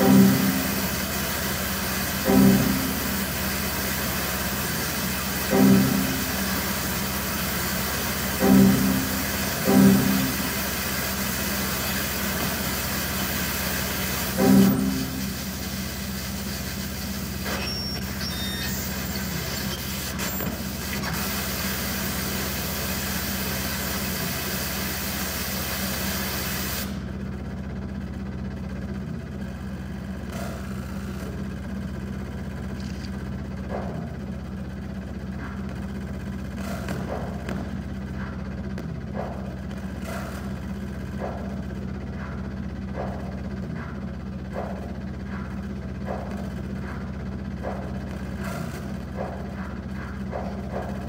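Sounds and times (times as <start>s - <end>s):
low hum: 0.0s - 20.8s, 26.9s - 51.0s
electronic hiss: 0.0s - 27.0s.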